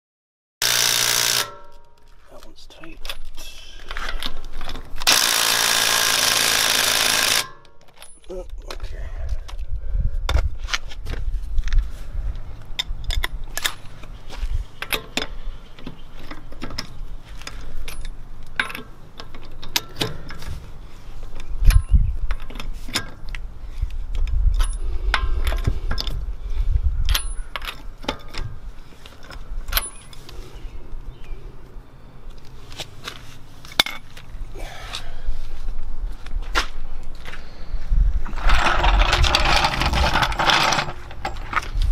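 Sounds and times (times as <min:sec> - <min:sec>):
metallic clinks of socket and lug nuts: 0:29.2 - 0:30.3.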